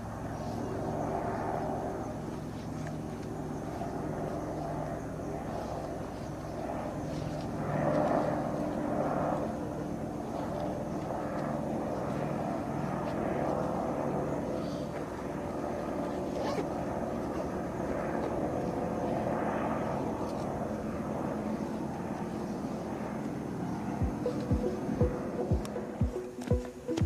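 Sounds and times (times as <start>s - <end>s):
helicopter engine and rotor drone: 0.0s - 27.0s.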